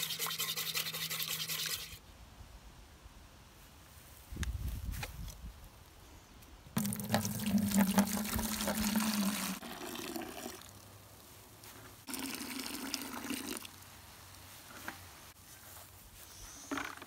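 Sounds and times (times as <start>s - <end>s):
liquid pouring into plastic bucket: 6.8s - 10.8s, 12.1s - 13.8s.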